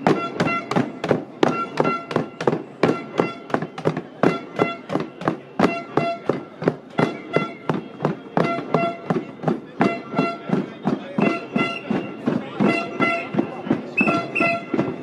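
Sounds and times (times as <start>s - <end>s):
pots and hand drums being beaten: 0.0s - 15.0s.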